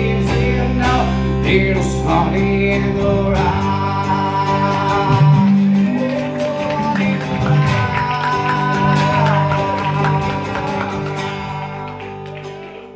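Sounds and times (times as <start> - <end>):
two guitars playing live: 0.0 - 12.9.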